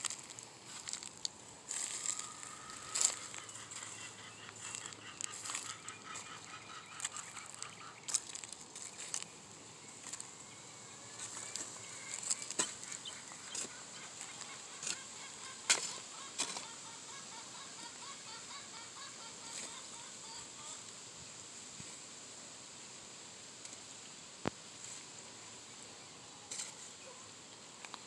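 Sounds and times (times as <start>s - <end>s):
bird calls: 1.7s - 20.8s
hoe chopping and scraping soil: 11.2s - 13.7s, 15.7s - 16.7s, 26.5s - 26.9s.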